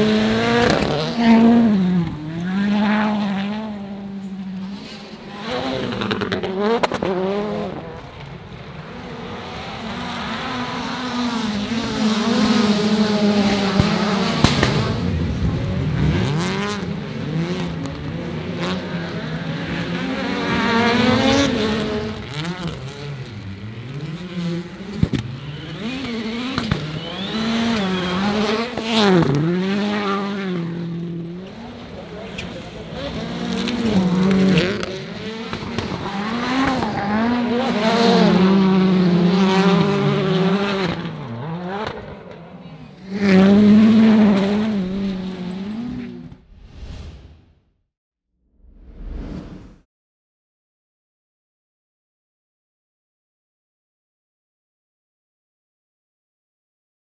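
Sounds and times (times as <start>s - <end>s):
race car engines revving: 0.0s - 46.5s
sharp engine pops: 14.4s - 14.8s.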